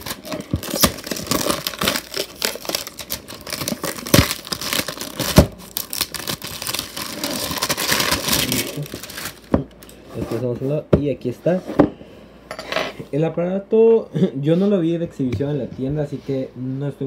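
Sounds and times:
plastic wrap crinkling: 0.0s - 9.9s.

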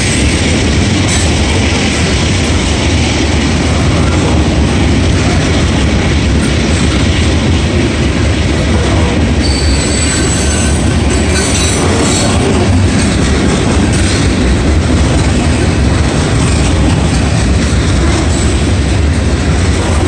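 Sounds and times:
steel wheels rumbling on rail: 0.0s - 20.0s
high wheel squeal: 9.4s - 12.4s.

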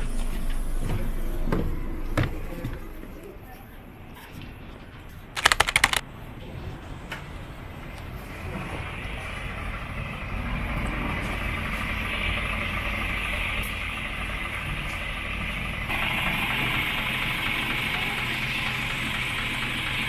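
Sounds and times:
bus engine idling: 8.9s - 20.0s.

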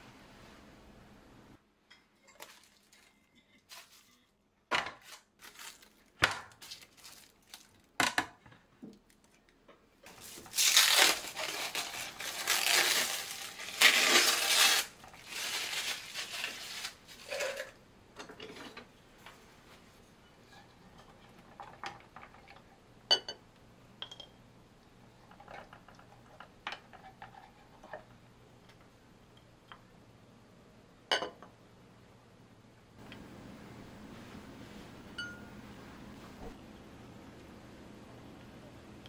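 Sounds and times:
plastic cling wrap crinkling: 2.4s - 4.3s, 5.0s - 8.0s, 10.1s - 17.6s.

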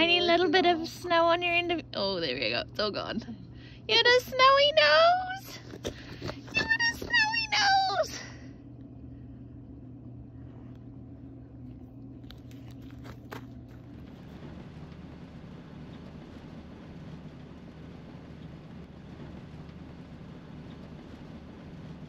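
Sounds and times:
steady low hum: 0.0s - 22.0s
van engine and tyre rumble: 12.2s - 22.0s.

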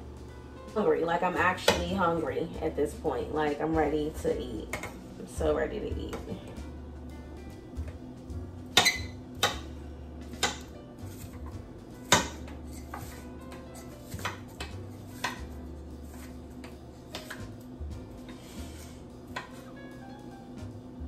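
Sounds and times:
knife chopping on countertop: 8.8s - 9.7s, 10.3s - 11.4s, 12.0s - 17.6s.

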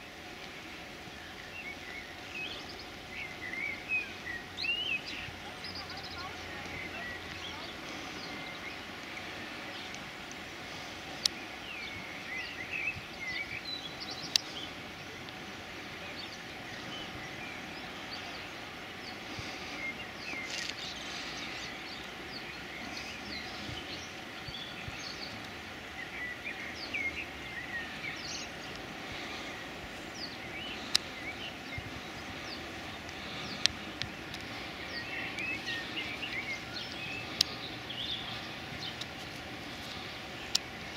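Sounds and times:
background hiss: 0.0s - 40.9s
small birds chirping: 0.0s - 40.9s
sharp clicks: 30.8s - 31.1s, 33.0s - 37.6s, 40.4s - 40.7s.

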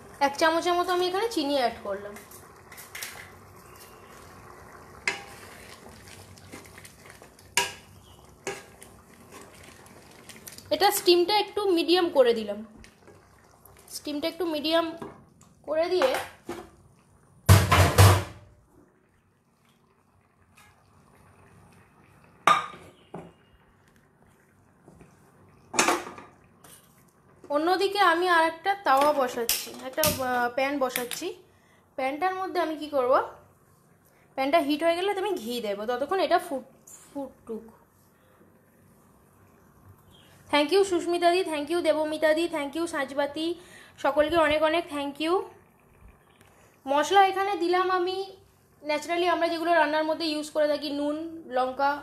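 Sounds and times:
spatula stirring thick dal: 0.0s - 16.0s, 22.9s - 25.6s
faint steady simmer: 0.0s - 52.0s.

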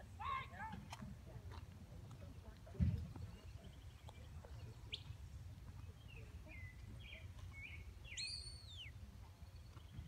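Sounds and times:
faint whistled chirps: 7.6s - 9.0s.

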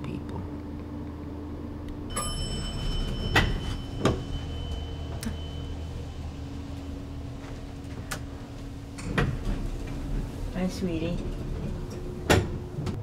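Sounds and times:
low hum: 0.0s - 13.0s
elevator chime: 2.1s - 9.0s
elevator doors knocking: 2.1s - 13.0s.

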